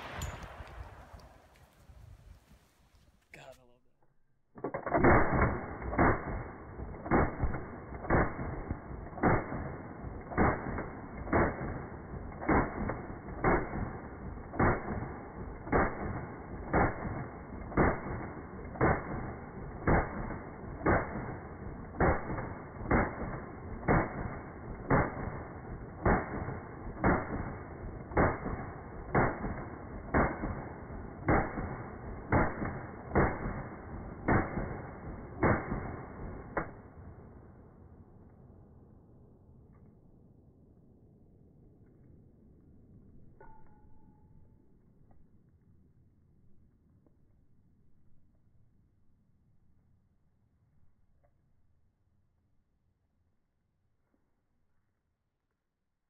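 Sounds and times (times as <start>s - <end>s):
slowed gunshots deep booms: 4.7s - 37.9s.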